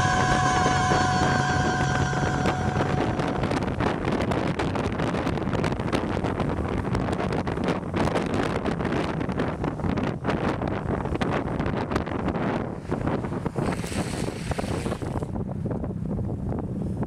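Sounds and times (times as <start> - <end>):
music: 0.0 - 3.8
road rumble: 0.0 - 17.0
wind buffeting microphone: 0.0 - 17.0.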